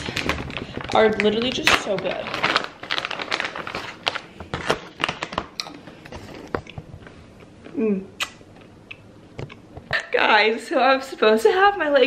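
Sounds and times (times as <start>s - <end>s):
plastic snack bag crinkling: 0.0s - 6.6s
person humming: 7.7s - 8.1s.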